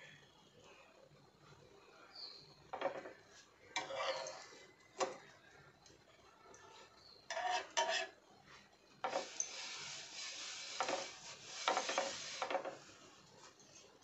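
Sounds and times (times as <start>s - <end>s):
spatula scraping a metal griddle: 3.8s - 4.6s, 6.8s - 8.2s, 9.0s - 13.9s.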